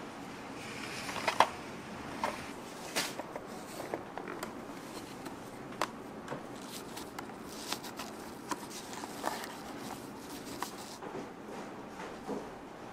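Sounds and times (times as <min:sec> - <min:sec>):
satin ribbon rustling: 0:06.5 - 0:11.0.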